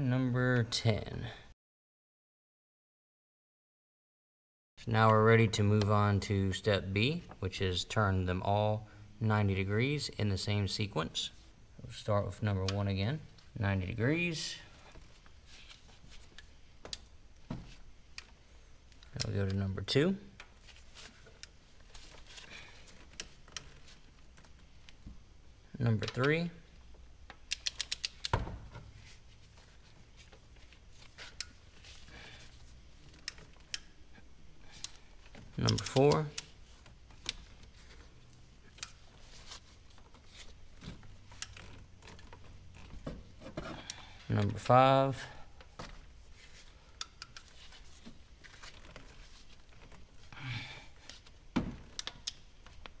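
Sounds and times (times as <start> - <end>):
ratchet wrench clicking: 27.5 - 28.4.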